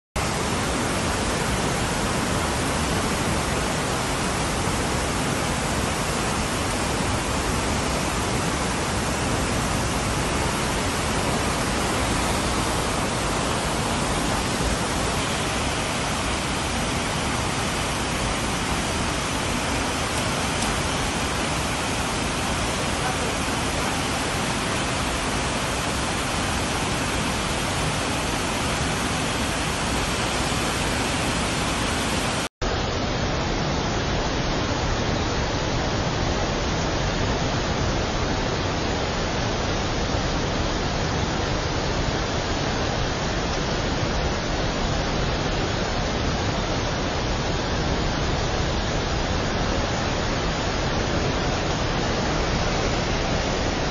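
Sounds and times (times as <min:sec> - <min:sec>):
waterfall rushing: 0:00.2 - 0:53.9.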